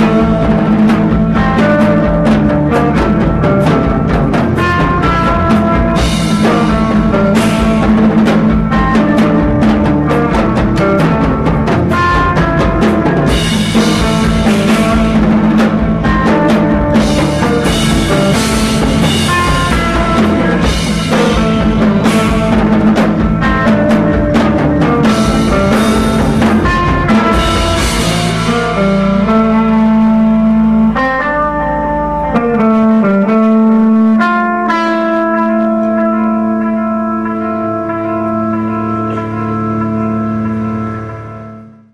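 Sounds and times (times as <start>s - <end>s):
drum kit with cymbals: 0.0s - 33.1s
electric guitars: 0.0s - 41.9s.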